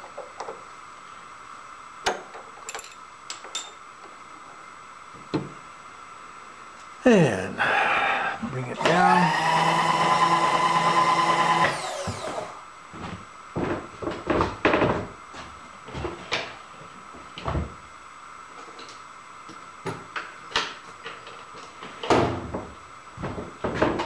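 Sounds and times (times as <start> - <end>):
tools and metal parts clunking: 2.6 - 3.8
electric motor winding down: 8.6 - 12.7.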